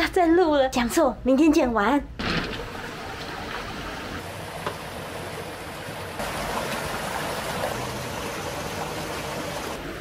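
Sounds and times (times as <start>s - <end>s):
stream running over rocks: 2.6s - 10.0s.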